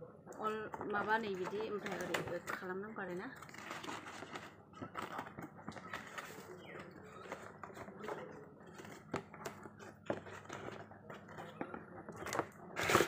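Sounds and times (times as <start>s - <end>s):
cardboard box rustling and scraping: 3.4s - 13.0s.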